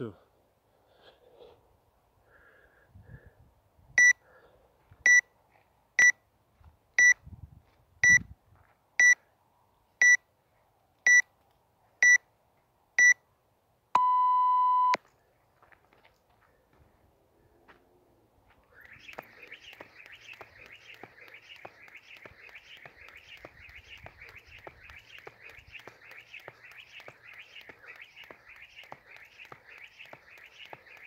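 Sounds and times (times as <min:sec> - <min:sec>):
long low beep: 0:14.0 - 0:15.0
short high beeps: 0:14.0 - 0:15.0.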